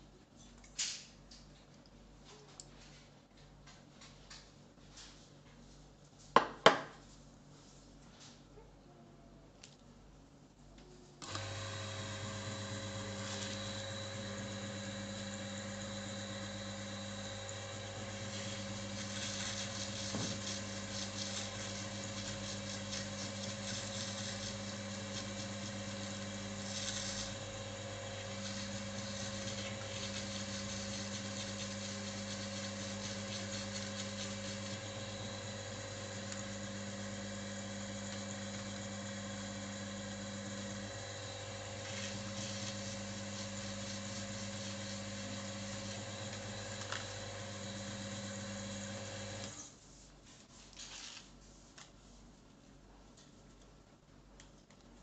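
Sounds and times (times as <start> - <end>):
electric motor humming: 11.2 - 49.6.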